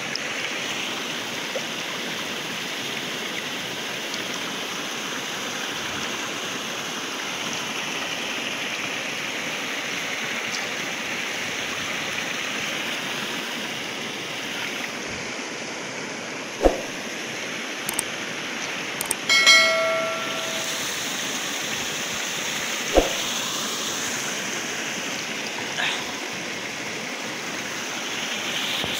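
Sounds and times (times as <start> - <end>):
river water rushing: 0.0 - 28.9
sharp clicks: 19.0 - 19.3
short ringing chime: 19.3 - 21.2.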